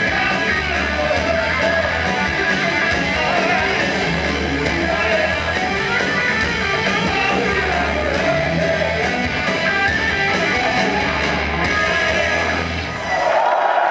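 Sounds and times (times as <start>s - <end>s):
person singing: 0.0s - 6.0s, 6.7s - 9.6s
distorted electric guitars: 0.0s - 13.3s
drums: 0.0s - 13.9s.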